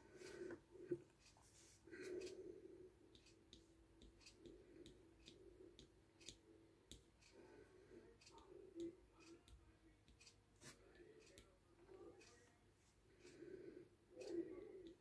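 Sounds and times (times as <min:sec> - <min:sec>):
wood-burning pen ticking on wood: 0:03.1 - 0:07.4, 0:08.2 - 0:10.4.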